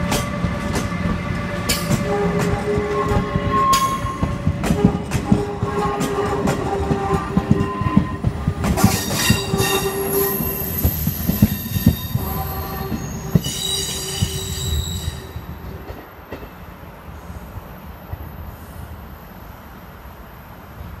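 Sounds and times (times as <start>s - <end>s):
train wheels clacking over rail joints: 0.0s - 14.8s
high wheel squeal: 8.8s - 15.4s.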